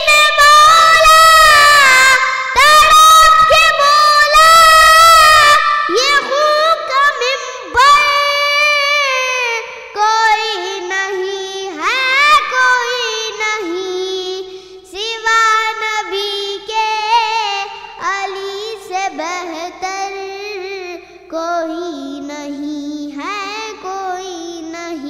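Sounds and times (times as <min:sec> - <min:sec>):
boy singing solo: 0:00.0 - 0:25.0.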